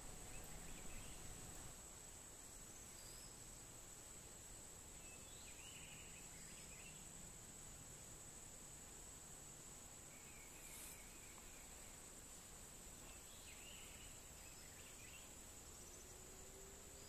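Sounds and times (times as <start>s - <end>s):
faint chirps: 0.0s - 1.7s, 4.9s - 7.2s, 10.0s - 17.0s.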